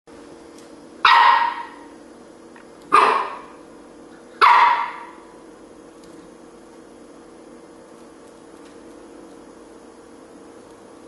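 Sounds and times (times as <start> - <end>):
puppy barking: 1.0 - 1.9, 2.9 - 3.6, 4.4 - 5.3.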